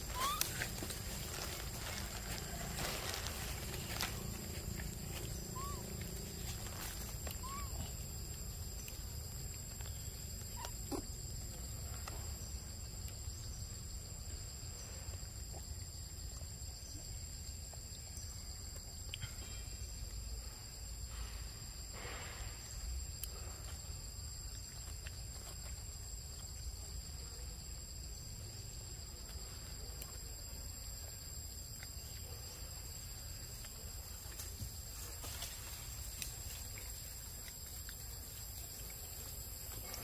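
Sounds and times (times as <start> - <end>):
faint rustles: 0.0 - 10.8.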